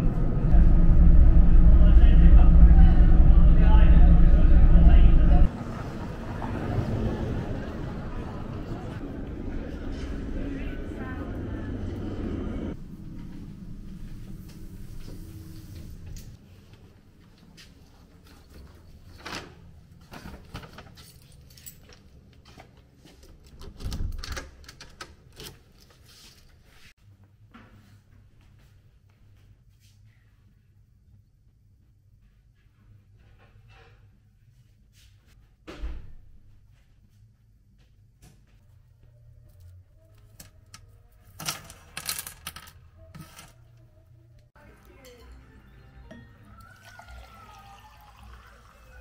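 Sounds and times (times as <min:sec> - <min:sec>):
low steady hum: 0:00.0 - 0:16.4
small objects clicking and clinking: 0:40.4 - 0:43.6.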